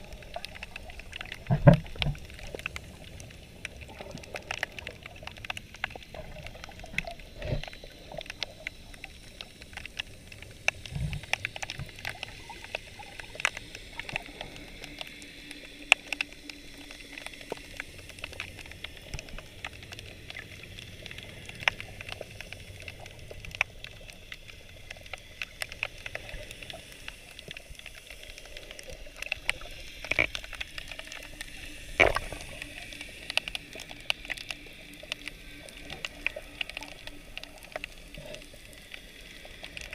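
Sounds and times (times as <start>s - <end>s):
sharp clicks and crackles: 0.0s - 39.9s
underwater water wash: 0.0s - 39.9s
underwater knocks: 1.4s - 2.2s.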